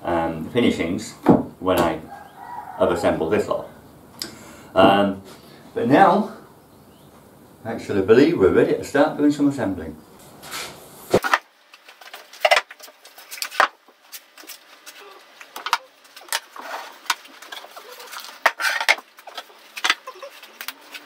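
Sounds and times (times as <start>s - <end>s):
wooden knocks and clunks: 1.2s - 2.0s.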